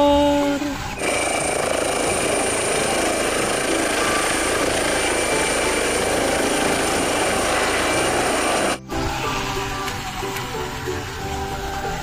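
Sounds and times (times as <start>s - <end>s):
high whine: 0.8s - 9.1s
helicopter rotor and turbine: 1.0s - 8.8s.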